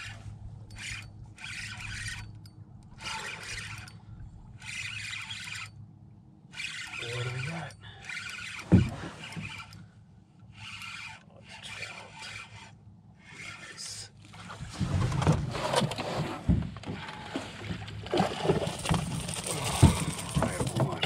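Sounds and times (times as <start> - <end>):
spinning reel cranking: 0.0 - 4.0, 4.6 - 5.8, 6.5 - 9.8, 10.5 - 13.7.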